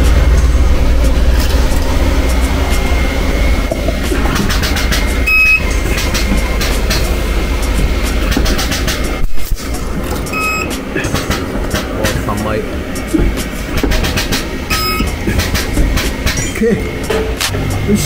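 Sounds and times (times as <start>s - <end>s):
welder humming: 0.0s - 18.0s
high electronic beep: 5.1s - 6.0s, 9.6s - 11.4s, 14.7s - 15.1s.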